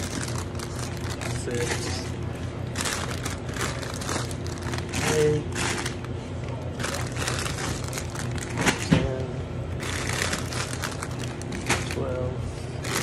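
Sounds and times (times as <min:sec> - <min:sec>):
plastic bags crinkling: 0:00.0 - 0:09.1, 0:09.7 - 0:12.2, 0:12.8 - 0:13.0.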